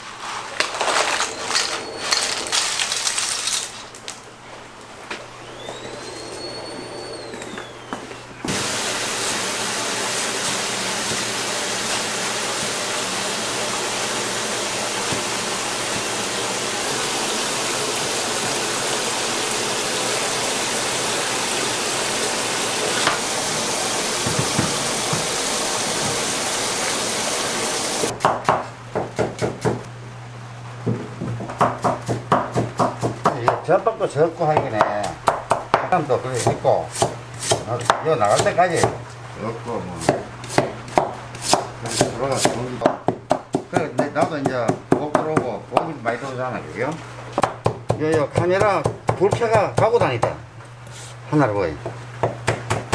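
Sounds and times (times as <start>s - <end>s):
low constant hum: 0.0s - 8.4s
faint high whistle: 5.4s - 8.2s
loud rushing hiss: 8.4s - 28.1s.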